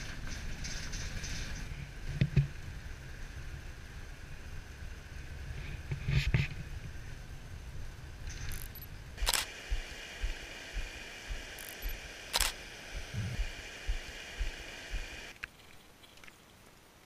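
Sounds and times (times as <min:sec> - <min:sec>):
camera shutter clicking: 0:08.4 - 0:09.6, 0:11.6 - 0:13.1
soft low thumps: 0:09.2 - 0:12.1, 0:12.9 - 0:15.2.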